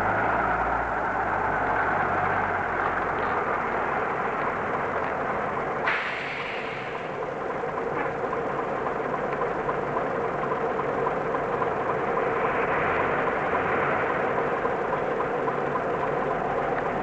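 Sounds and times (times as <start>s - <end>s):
diesel bus engine running: 0.0s - 17.0s.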